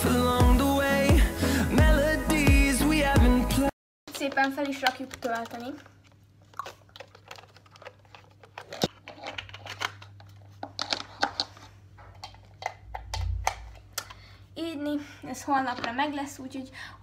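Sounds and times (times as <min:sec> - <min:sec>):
handling clicks and rustling: 0:04.1 - 0:13.9.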